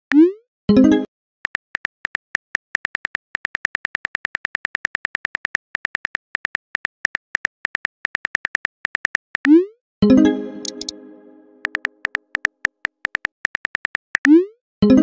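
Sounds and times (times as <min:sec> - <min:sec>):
phone keyboard clicks: 0:01.5 - 0:09.6, 0:10.6 - 0:11.0, 0:11.6 - 0:14.3.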